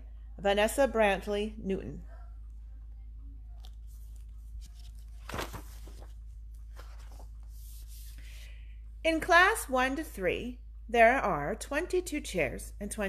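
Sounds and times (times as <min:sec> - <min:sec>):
low steady hum: 0:00.0 - 0:13.0
paper pages turning: 0:03.6 - 0:08.4.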